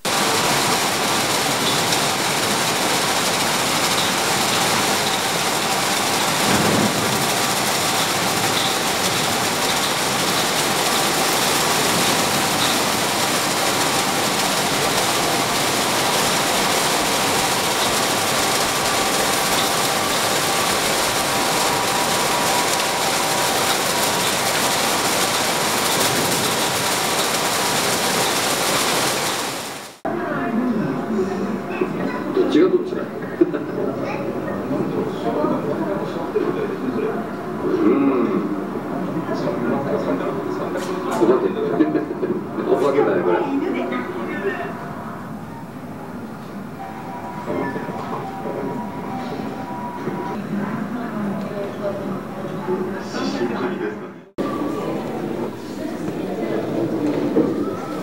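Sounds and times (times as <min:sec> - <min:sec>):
car wash brushes whirring: 0:00.0 - 0:30.0.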